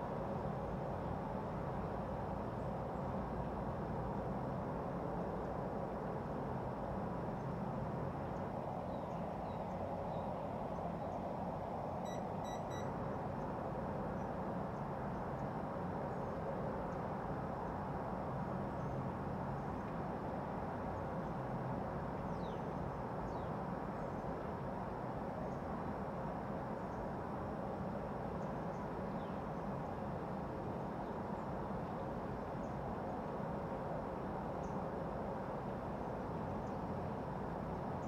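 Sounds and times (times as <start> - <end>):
faint constant hum: 0.0 - 38.0
faint short chirps: 12.0 - 13.0
high electronic beeps: 12.1 - 12.9.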